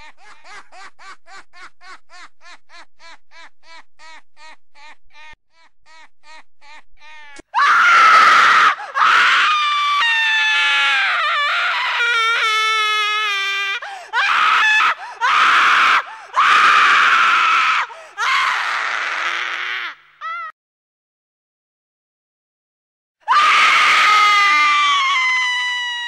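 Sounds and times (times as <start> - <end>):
raspy screaming: 7.2 - 12.5, 23.3 - 26.0.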